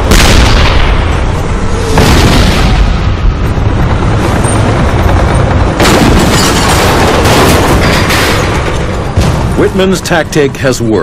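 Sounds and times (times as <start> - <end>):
gunfire: 0.0 - 3.0
low rumble: 0.0 - 9.8
explosions: 0.0 - 9.9.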